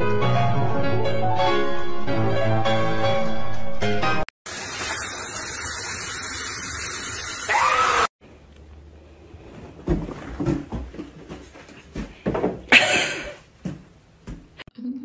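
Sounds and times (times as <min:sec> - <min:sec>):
shower water spraying: 0:04.5 - 0:08.1.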